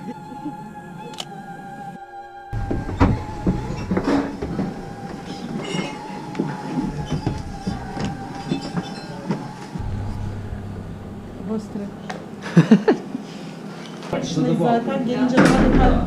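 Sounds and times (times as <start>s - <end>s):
footsteps on wooden stairs: 2.6s - 5.6s
steady tone: 9.1s - 13.3s.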